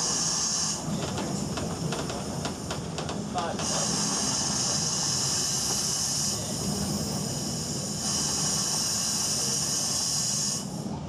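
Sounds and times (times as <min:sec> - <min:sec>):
steam hiss: 0:00.0 - 0:11.0
carriage rumbling on rails: 0:00.8 - 0:04.0.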